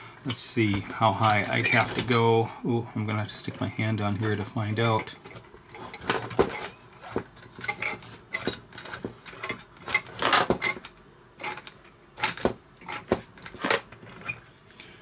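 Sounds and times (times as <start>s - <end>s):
plastic parts clicking and knocking: 0.3s - 2.2s, 4.2s - 14.4s.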